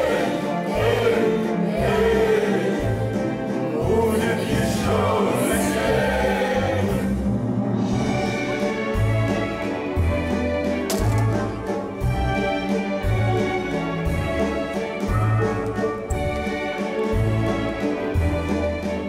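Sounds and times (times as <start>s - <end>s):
choir singing: 0.0s - 10.0s
orchestral music: 0.0s - 19.0s.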